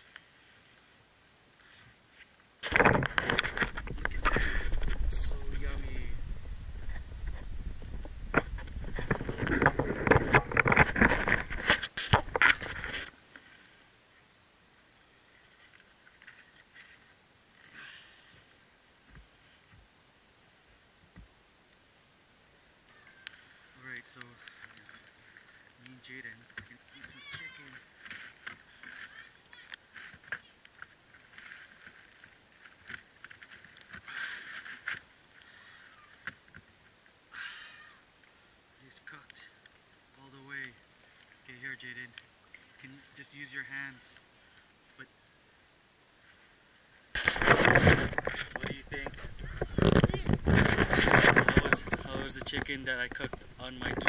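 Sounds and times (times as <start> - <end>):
close rustling and scraping: 1.6 - 13.8, 15.3 - 18.4, 23.1 - 37.0, 46.2 - 54.0
low rumble: 3.7 - 10.6.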